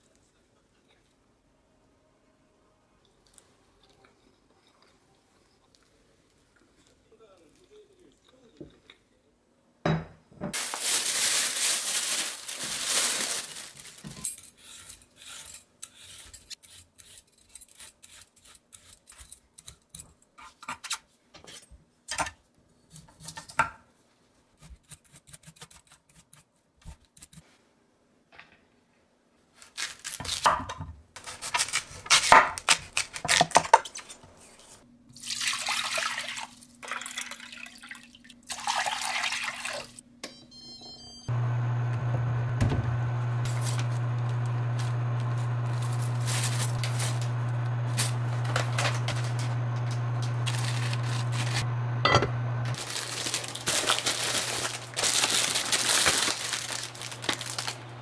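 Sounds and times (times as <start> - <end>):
water pouring into pot: 35.2 - 40.0
bowls and utensils clattering: 52.0 - 52.4.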